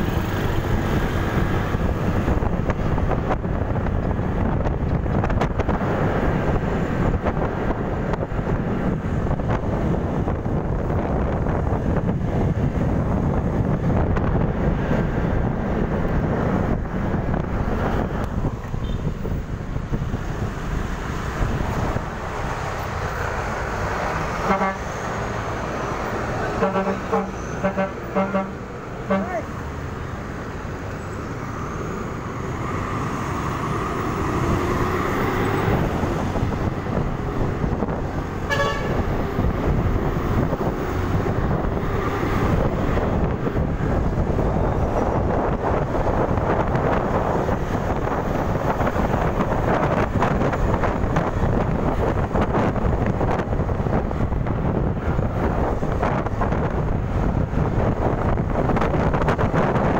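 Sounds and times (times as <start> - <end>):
wind buffeting microphone: 0.0 - 26.7, 29.7 - 59.9
road noise: 0.0 - 59.9
horn toot: 24.4 - 25.0, 26.5 - 29.5, 38.4 - 39.0.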